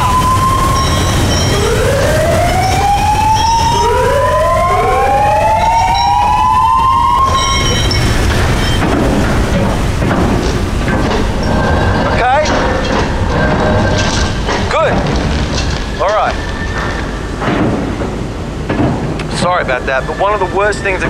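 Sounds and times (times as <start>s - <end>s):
warning siren wailing: 0.0s - 10.0s, 19.5s - 21.0s
low rumble: 0.0s - 21.0s.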